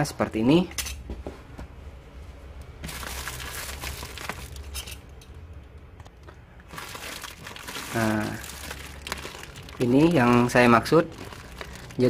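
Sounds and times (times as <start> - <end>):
plastic tearing: 2.8 - 5.0, 6.7 - 12.0
plastic wrapping crinkling: 2.8 - 5.0, 6.6 - 12.0.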